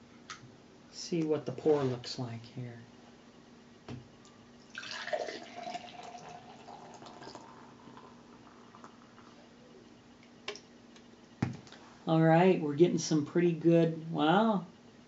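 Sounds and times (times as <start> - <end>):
beer pouring into a glass: 4.6 - 9.1.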